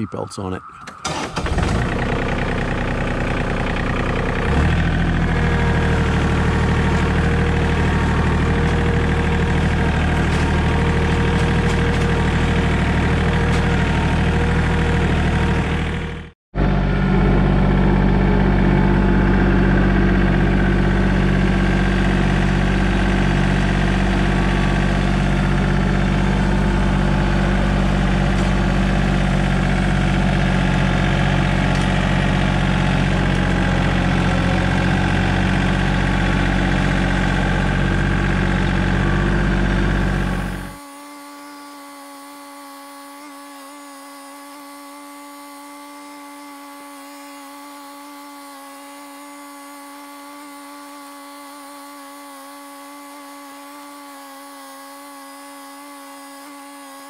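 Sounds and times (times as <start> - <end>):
tractor diesel engine running: 0.0 - 40.8.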